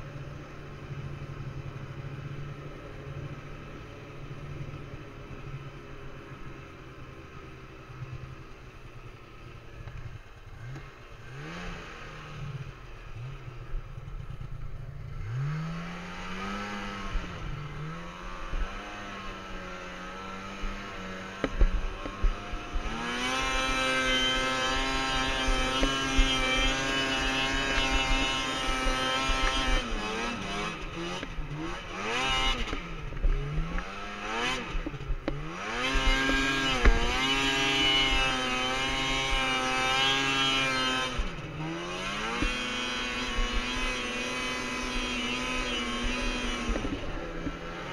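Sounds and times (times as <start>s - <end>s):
snowmobile engine revving: 10.1s - 47.9s.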